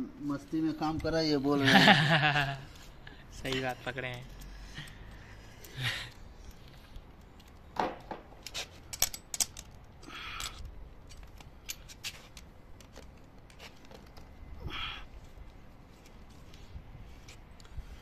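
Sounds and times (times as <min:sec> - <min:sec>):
metal tools clicking: 0:08.4 - 0:13.0.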